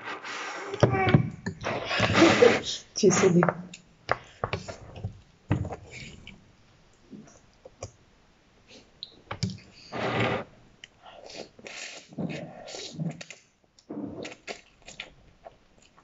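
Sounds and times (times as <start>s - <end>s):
slurping noodles: 1.6s - 2.7s, 11.2s - 15.1s
chewing: 14.2s - 16.0s.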